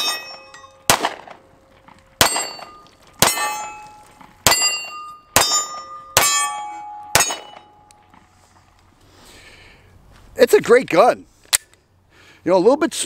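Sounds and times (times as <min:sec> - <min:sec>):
pistol shots: 0:00.0 - 0:01.4, 0:02.2 - 0:03.8, 0:04.4 - 0:07.7
steel plate target clanging: 0:00.0 - 0:01.4, 0:02.2 - 0:07.9.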